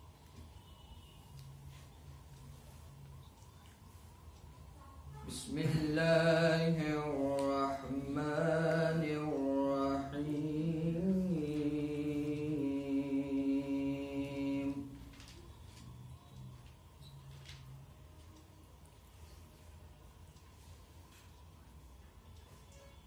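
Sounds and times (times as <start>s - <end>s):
man chanting recitation: 5.1s - 15.2s.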